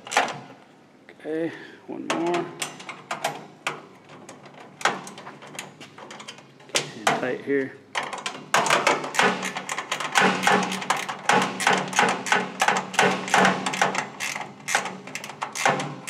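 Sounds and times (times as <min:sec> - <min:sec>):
ratchet wrench clicking: 0:09.4 - 0:15.8.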